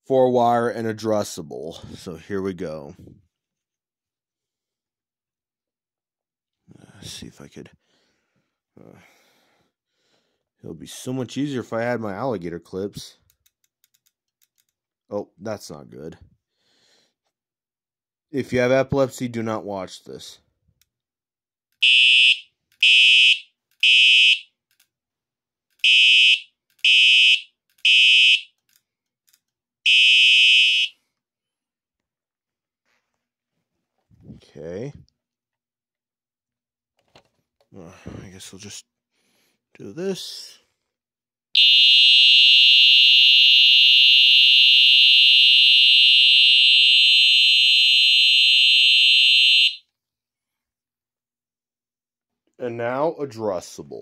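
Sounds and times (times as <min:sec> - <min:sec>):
fire alarm horn blasts: 0:21.8 - 0:24.5, 0:25.8 - 0:28.6, 0:29.8 - 0:31.0, 0:41.6 - 0:49.8.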